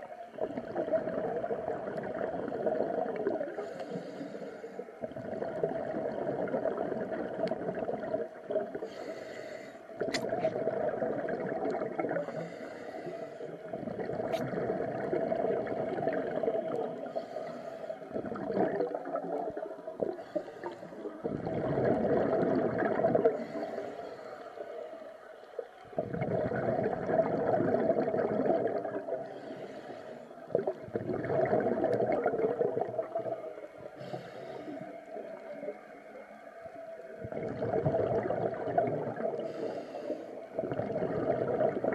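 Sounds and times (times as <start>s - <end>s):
bubbling exhalations underwater: 0.0s - 3.7s, 5.0s - 9.1s, 10.0s - 12.5s, 13.6s - 17.3s, 18.1s - 23.7s, 25.9s - 29.5s, 30.5s - 35.7s, 37.2s - 39.8s, 40.4s - 41.9s.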